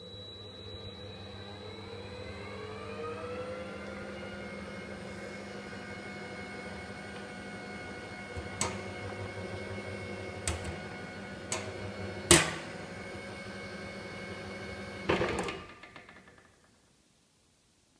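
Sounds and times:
electric motor humming: 1.5s - 15.1s.

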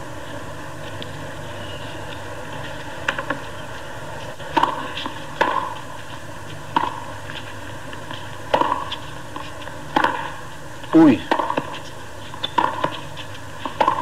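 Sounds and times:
broadcast hiss: 0.0s - 13.9s
tennis ball struck with rackets: 4.5s - 5.8s, 6.7s - 7.1s, 8.5s - 9.0s, 9.9s - 10.4s, 11.0s - 11.8s, 12.4s - 14.0s
tennis ball bouncing on court: 4.5s - 5.9s, 6.7s - 10.4s, 11.1s - 14.0s.

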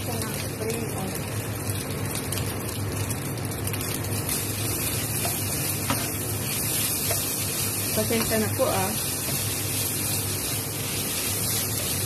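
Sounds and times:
rice sizzling in a wok: 0.0s - 12.0s
steady low hum: 0.0s - 12.0s
wooden spatula scraping: 4.8s - 12.0s.

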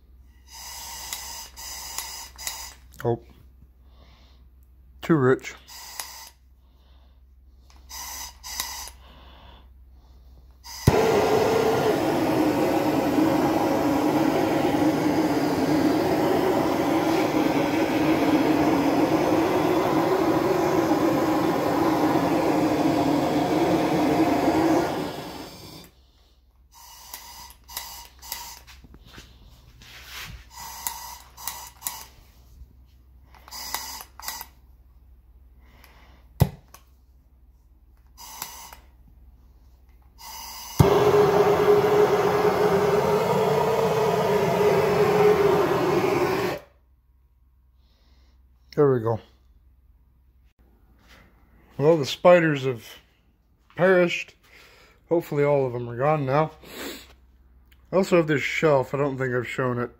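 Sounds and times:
gas torch ignition click: 0.6s - 2.8s, 5.8s - 6.4s, 10.7s - 26.0s, 26.8s - 28.7s, 30.6s - 32.2s, 33.3s - 34.6s, 38.0s - 38.9s, 39.9s - 46.7s
torch flame hissing: 10.6s - 26.0s, 40.2s - 46.7s.

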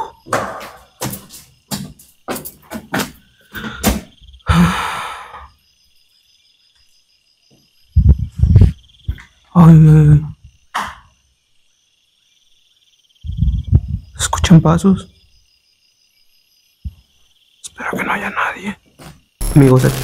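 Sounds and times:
night insects trilling: 0.0s - 20.0s
man breathing heavily: 3.3s - 5.5s
man sighing: 4.5s - 5.4s.

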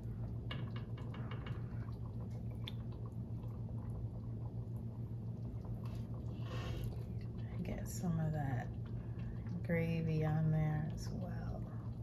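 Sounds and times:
steady low hum: 0.0s - 12.0s
wet food squishes: 1.7s - 7.6s.

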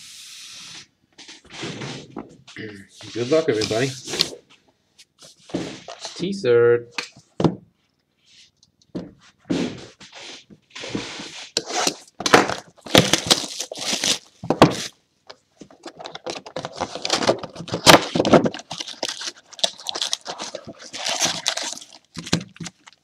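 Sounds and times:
plastic wrap tearing and crinkling: 11.5s - 15.0s, 15.8s - 23.0s.

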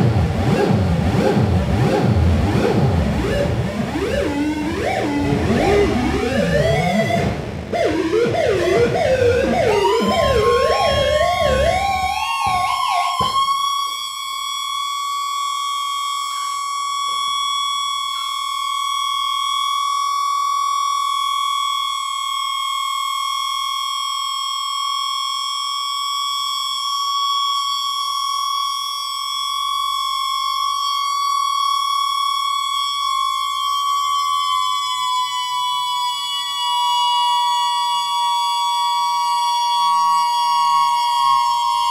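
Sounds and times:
warbling electronic tones: 0.0s - 13.5s
low electronic tone: 0.0s - 13.7s, 33.0s - 41.9s
steady high electronic tone: 0.0s - 13.9s.

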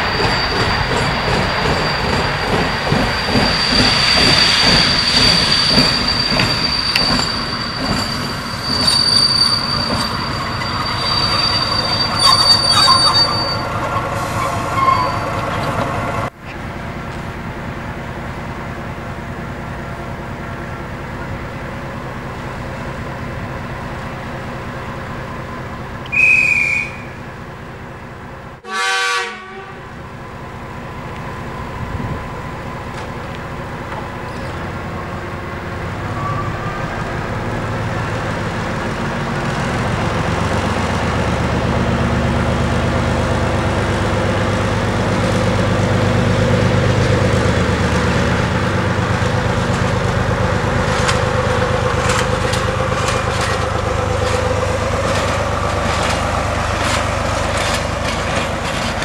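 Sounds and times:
train horn toot: 28.6s - 30.0s
wheels clicking over rail joints: 44.5s - 59.0s.

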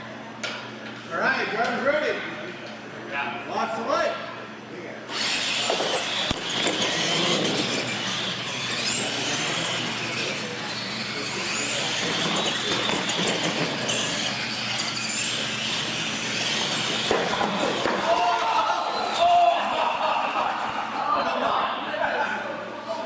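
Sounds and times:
electric motors whining: 5.0s - 21.8s
tyres rushing on concrete: 5.2s - 20.6s.

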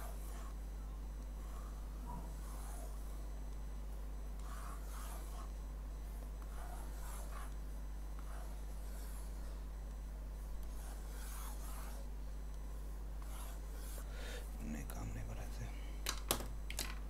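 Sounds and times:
low electrical hum: 0.0s - 17.0s
faint scratching and rubbing: 1.4s - 3.0s, 4.4s - 5.6s, 6.4s - 9.6s, 10.6s - 12.1s.

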